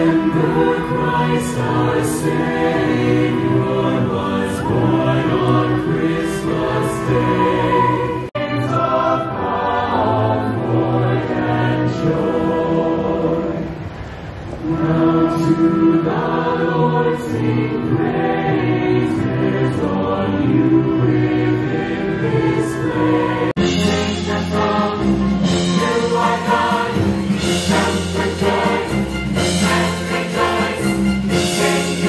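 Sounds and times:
choir singing with orchestra: 0:00.0 - 0:32.0
trumpets playing: 0:23.6 - 0:32.0.

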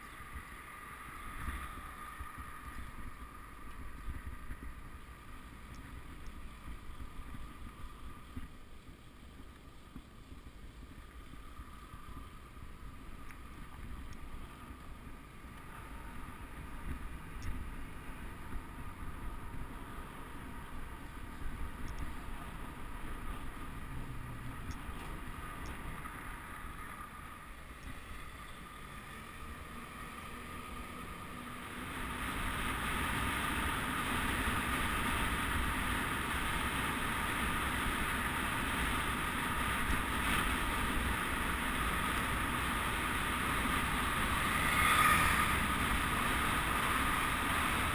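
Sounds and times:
wind rushing over microphone: 0:00.0 - 0:09.0
tyres rumbling on road: 0:00.0 - 0:47.9.

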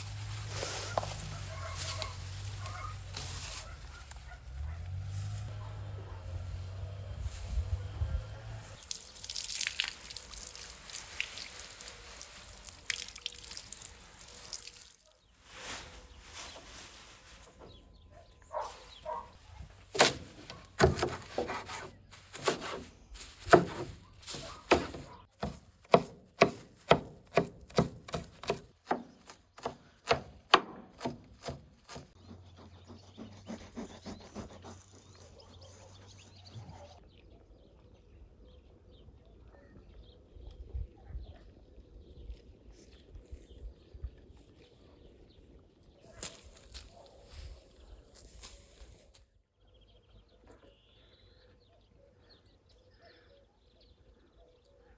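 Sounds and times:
water from hose splashing: 0:08.8 - 0:15.1
knife chopping on wooden board: 0:20.0 - 0:22.8, 0:23.4 - 0:32.1.

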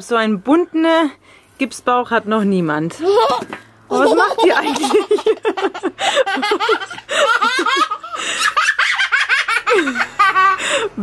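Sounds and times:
people giggling: 0:03.1 - 0:11.0.

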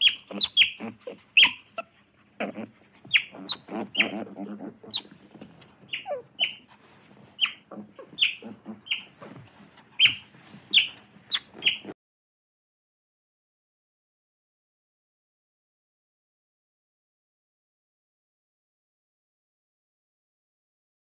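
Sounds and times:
otter squeaky chirps: 0:00.0 - 0:06.7, 0:07.4 - 0:12.0.

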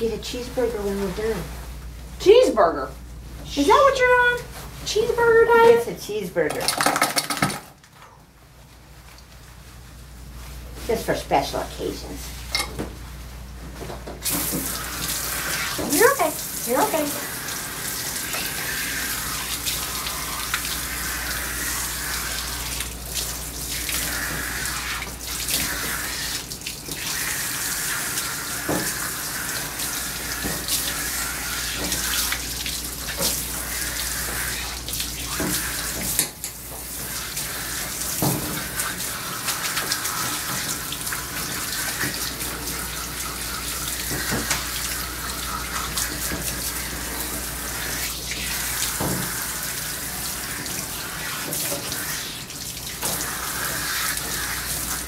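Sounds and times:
water spraying on dog's coat: 0:14.2 - 0:36.2, 0:36.8 - 0:55.0.

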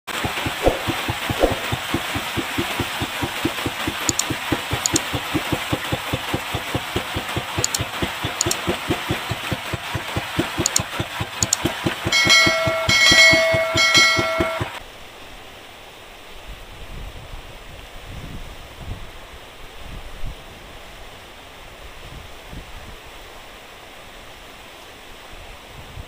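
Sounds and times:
boat engine puttering: 0:00.1 - 0:14.8
short clicks: 0:04.1 - 0:05.1, 0:07.6 - 0:08.6, 0:10.6 - 0:11.6
bright chime: 0:12.1 - 0:14.8.

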